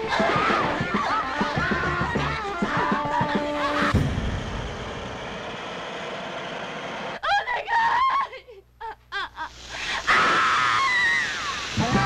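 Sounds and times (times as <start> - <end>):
high-pitched voice crying out: 7.2 - 11.5
blowtorch flame hissing: 9.5 - 12.0.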